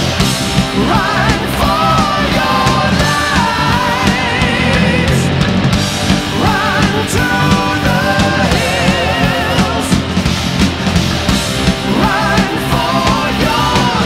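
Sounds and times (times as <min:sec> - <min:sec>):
loud rock music: 0:00.0 - 0:14.0.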